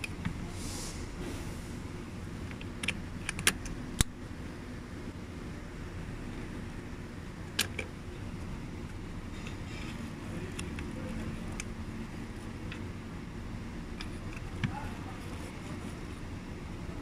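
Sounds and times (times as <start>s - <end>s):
steady low hum: 0.0s - 17.0s
sharp plastic clicks: 2.4s - 4.2s, 7.5s - 7.9s.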